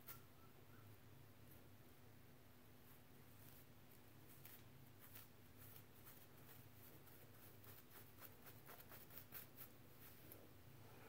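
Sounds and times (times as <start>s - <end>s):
comb scratching scalp: 3.3s - 10.4s.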